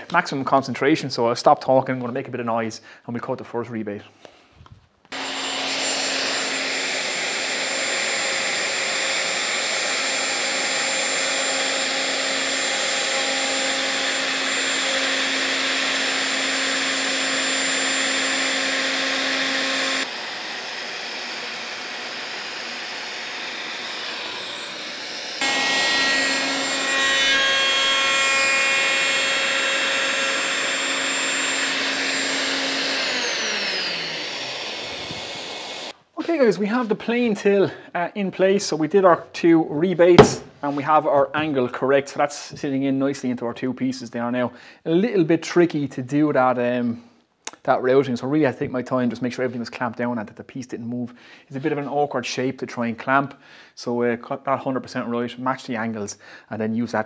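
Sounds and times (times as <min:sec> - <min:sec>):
router cutting wood: 0:05.1 - 0:36.0, 0:40.1 - 0:40.5.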